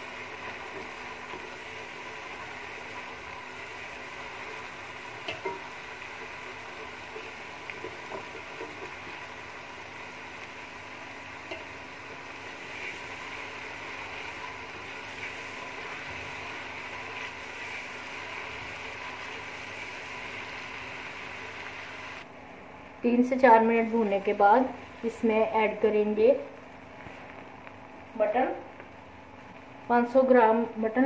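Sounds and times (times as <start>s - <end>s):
paste sizzling in hot oil: 0.0s - 22.2s.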